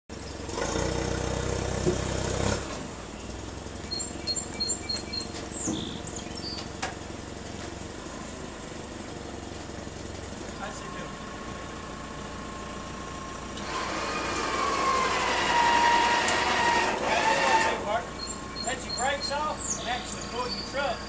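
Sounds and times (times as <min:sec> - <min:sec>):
forklift engine idling: 0:00.1 - 0:21.0
bird chirping: 0:03.1 - 0:06.8, 0:18.1 - 0:21.0.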